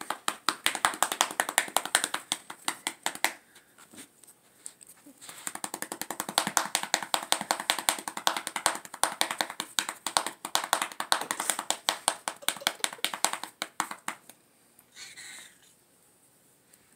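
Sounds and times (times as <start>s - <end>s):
crop patting a cat: 5.2s - 14.3s.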